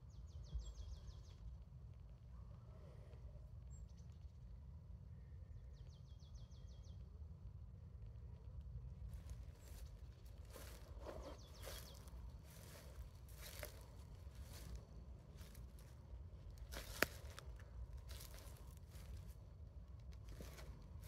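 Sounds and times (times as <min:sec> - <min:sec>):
footsteps crunching on rough ground: 0:09.1 - 0:21.0.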